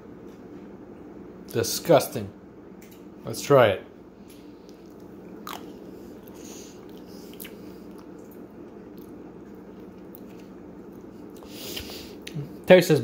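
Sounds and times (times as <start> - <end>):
steady low hum: 0.0 - 13.0
person chewing: 4.6 - 12.4
mouth clicks and smacks: 6.3 - 9.2.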